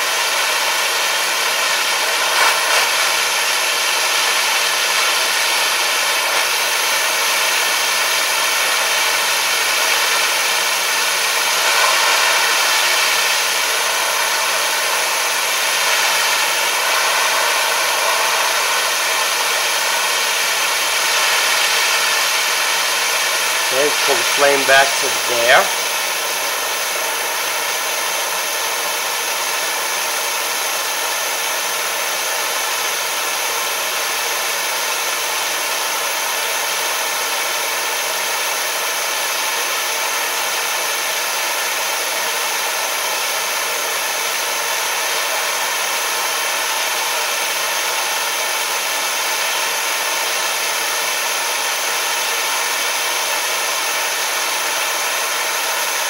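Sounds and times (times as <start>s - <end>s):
gas torch hissing: 0.0s - 34.8s.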